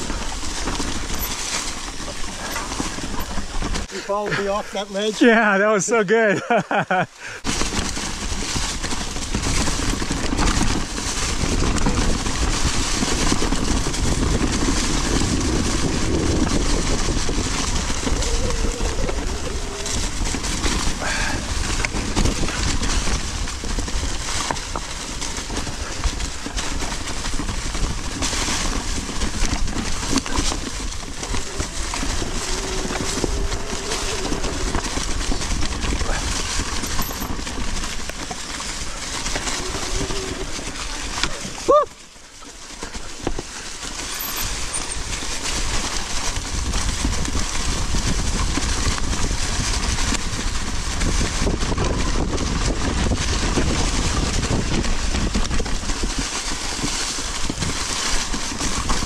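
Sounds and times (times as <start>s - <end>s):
bike tyres rattling over dirt: 0.0s - 59.0s
wind buffeting microphone: 7.4s - 38.0s, 44.4s - 59.0s.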